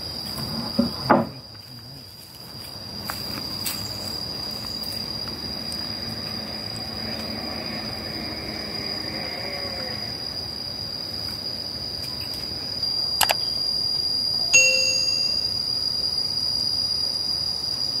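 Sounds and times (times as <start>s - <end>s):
insects trilling: 0.0s - 18.0s
sharp click: 13.2s - 13.4s
short bright ding: 14.6s - 15.5s.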